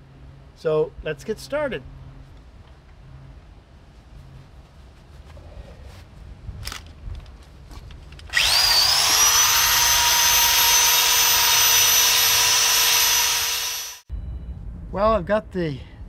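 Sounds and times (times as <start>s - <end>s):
electric drill whine: 8.3s - 14.0s.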